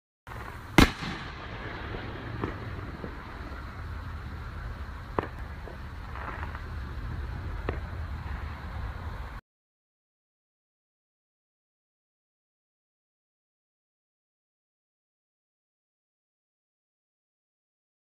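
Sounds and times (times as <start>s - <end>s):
fireworks bangs and cracks: 0.3s - 9.4s
steady low rumble: 0.3s - 9.4s.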